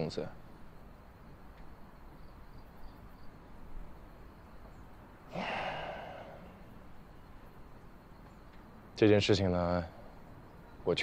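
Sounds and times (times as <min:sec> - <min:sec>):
short breathy sound: 0:05.3 - 0:06.6.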